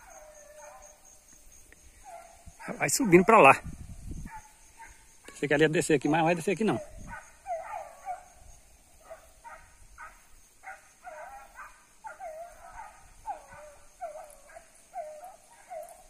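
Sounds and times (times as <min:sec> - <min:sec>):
hunting dogs baying: 0:00.0 - 0:01.1, 0:01.9 - 0:03.6, 0:06.5 - 0:16.0.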